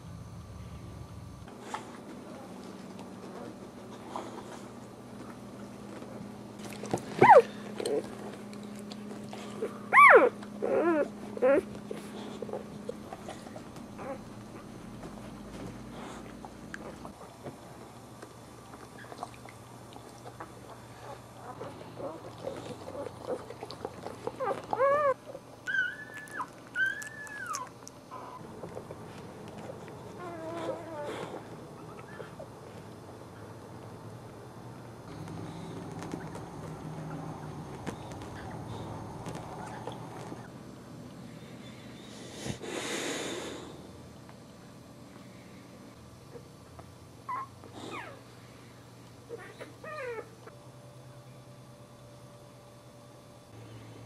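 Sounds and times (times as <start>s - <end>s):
puppies squealing: 7.2s - 7.5s, 9.9s - 11.7s, 24.4s - 28.4s, 47.3s - 48.2s
puppies squeaking and whimpering: 7.2s - 8.1s, 9.6s - 12.0s, 21.0s - 28.4s, 30.1s - 32.5s, 47.3s - 48.2s, 49.3s - 50.3s.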